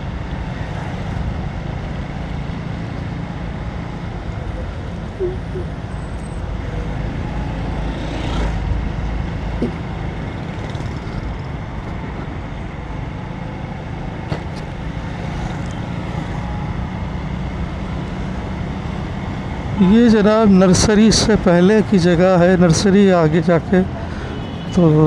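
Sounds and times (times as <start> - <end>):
motorcycle engine and road rumble: 0.0 - 25.0
motorcycle passing close by: 7.7 - 8.7.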